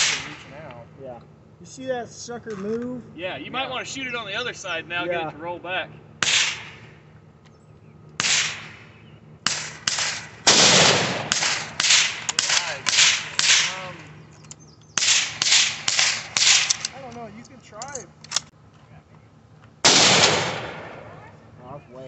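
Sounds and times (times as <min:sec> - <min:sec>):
rifle gunshots: 0:00.0 - 0:00.5, 0:06.2 - 0:07.0, 0:08.2 - 0:14.0, 0:15.0 - 0:17.0, 0:19.8 - 0:21.2.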